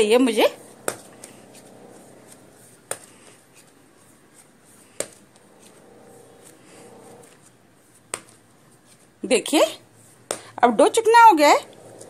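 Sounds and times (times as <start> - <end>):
dough kneaded by hand: 0.0 - 12.0.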